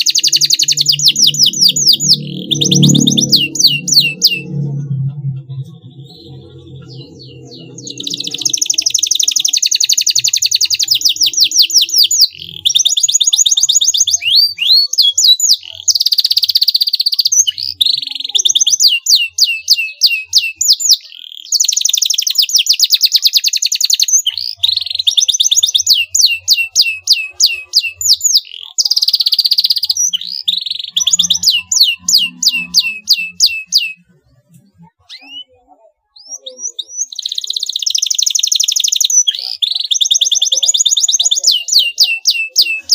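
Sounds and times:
canary singing trills: 0.0s - 42.9s.

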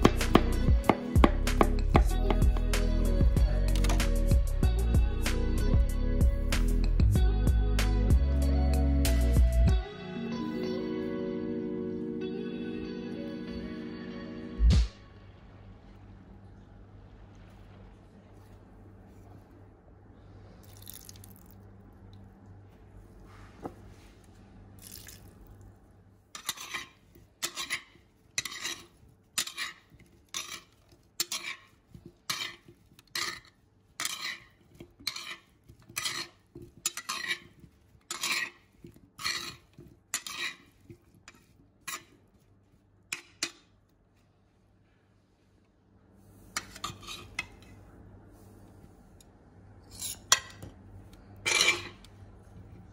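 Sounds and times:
spoons scraping a ceramic bowl: 26.3s - 43.7s, 46.4s - 47.8s, 49.8s - 50.6s, 51.4s - 52.1s.

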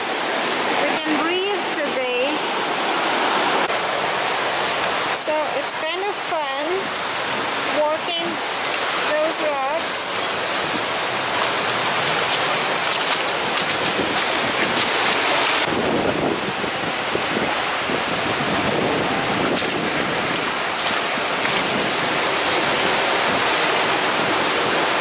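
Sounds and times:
surf on cobble beach: 0.0s - 25.0s
wind buffeting microphone: 10.3s - 25.0s
stones clicking underfoot: 12.2s - 15.6s.

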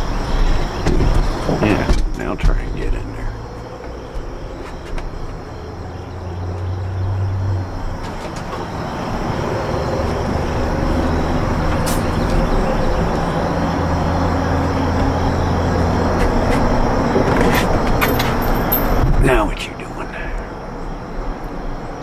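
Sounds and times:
vehicle engine approaching: 2.6s - 19.5s.

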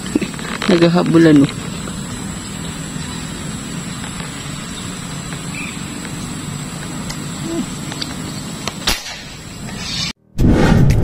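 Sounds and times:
thin high whine: 0.0s - 10.2s.

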